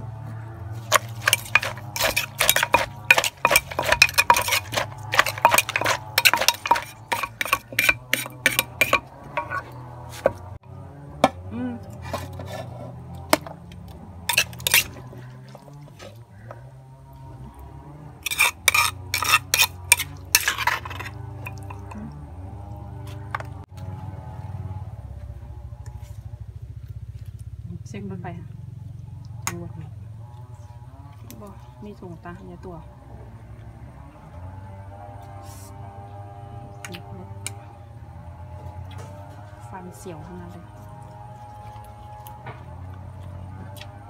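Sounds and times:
metal ladle clinking in mortar: 0.9 - 9.7, 14.3 - 15.0, 18.2 - 22.0.

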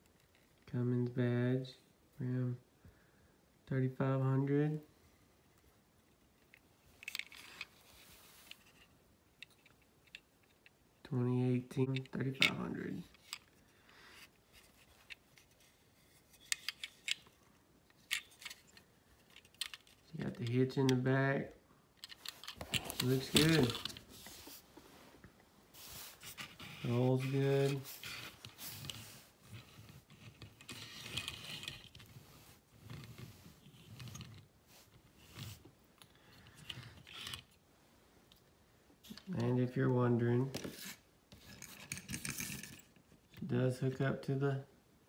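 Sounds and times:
small plastic and metal clicks: 16.4 - 21.0
toy truck wheels rolling on mat: 22.0 - 24.6, 25.8 - 35.7, 36.6 - 37.6.

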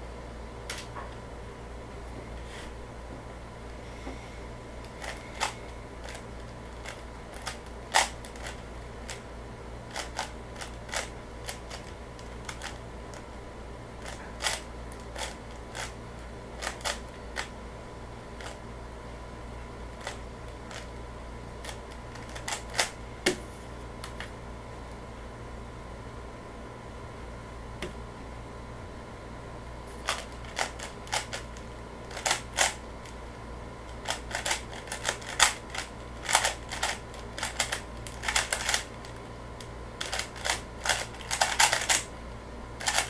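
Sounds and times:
puzzle cube plastic clicks: 32.1 - 32.8, 34.0 - 39.2, 40.0 - 42.1, 42.8 - 43.0.

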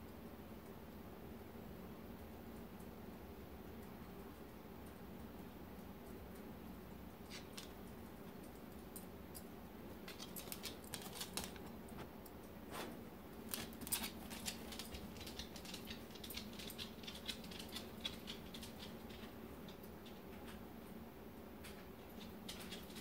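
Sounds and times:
light clicks and ticks: 2.2 - 12.6.

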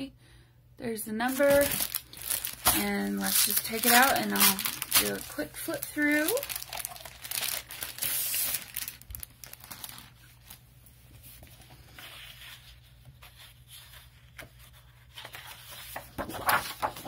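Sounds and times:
plastic sleeve crinkling: 1.2 - 14.6
paper rustling: 1.3 - 17.0.

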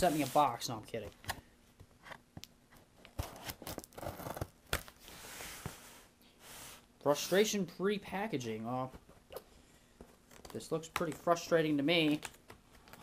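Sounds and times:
tape and cardboard tearing: 3.1 - 5.0.

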